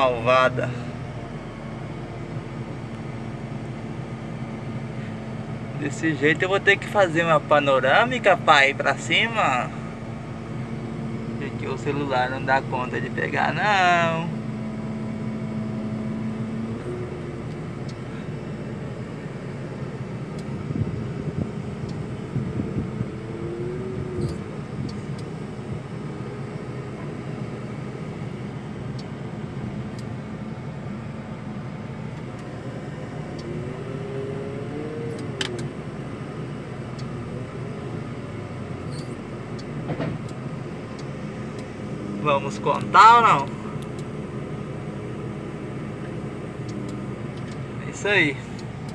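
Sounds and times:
diesel engine running under load: 0.0s - 48.9s
sharp clicks and knocks: 38.9s - 41.7s.

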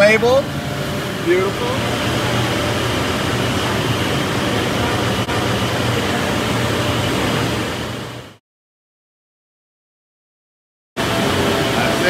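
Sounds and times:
fan-like machinery hiss and hum: 0.0s - 8.4s, 11.0s - 12.0s.

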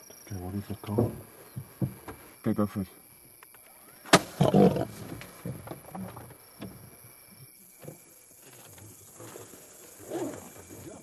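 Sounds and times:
lion growling: 4.4s - 5.0s
lion roaring snarl: 4.4s - 5.0s.

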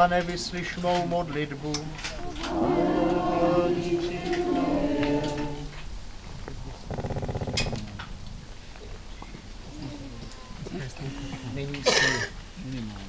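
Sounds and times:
congregation chanting in unison: 2.0s - 5.9s.

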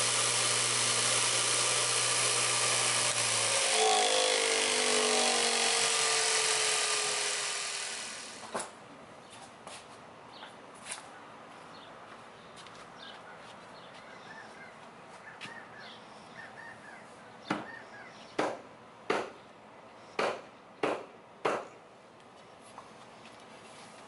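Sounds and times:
faint bird chirps: 13.9s - 18.4s.

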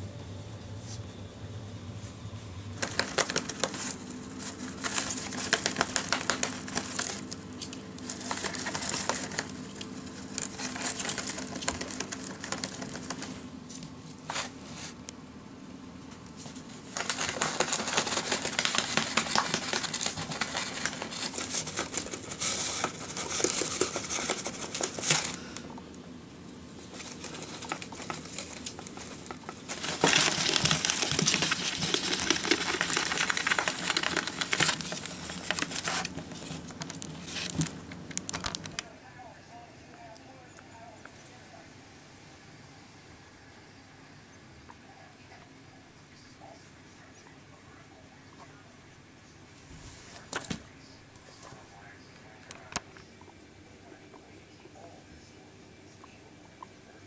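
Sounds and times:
rabbits chewing: 0.0s - 57.0s
paper crinkling and tearing: 2.8s - 15.0s, 16.4s - 25.6s, 26.8s - 38.8s.

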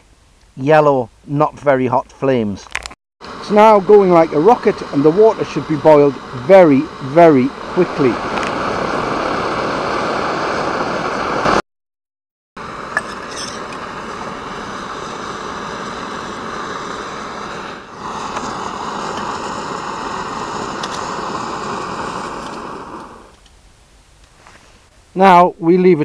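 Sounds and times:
pressure stove burning with rushing: 3.2s - 11.6s, 12.6s - 23.5s.

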